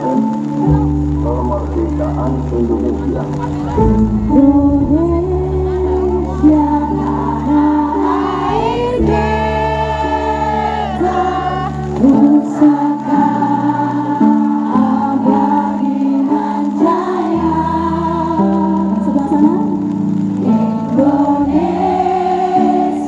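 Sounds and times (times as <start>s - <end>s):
backing track: 0.0s - 23.0s
woman singing into a microphone: 3.8s - 23.0s.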